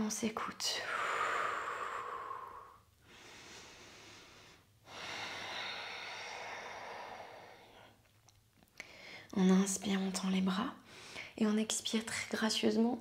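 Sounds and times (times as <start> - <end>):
woman breathing: 0.8 - 8.1, 8.8 - 9.4, 10.8 - 11.4.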